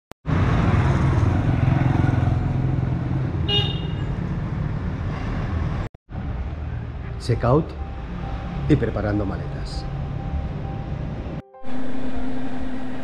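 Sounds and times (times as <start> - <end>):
road noise: 0.2 - 13.0
vehicle engine running: 9.9 - 13.0.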